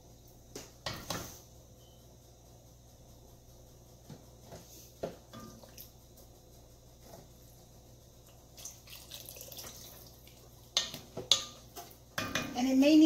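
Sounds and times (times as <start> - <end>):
wooden spoon stirring liquid: 8.3 - 12.4
wet sloshing and dripping: 8.6 - 10.5
spoon knocking on pot: 10.7 - 12.7.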